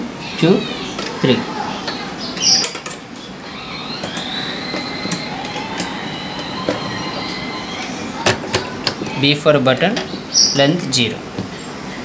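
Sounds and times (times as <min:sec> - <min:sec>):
sewing machine motor whine: 0:03.4 - 0:08.2.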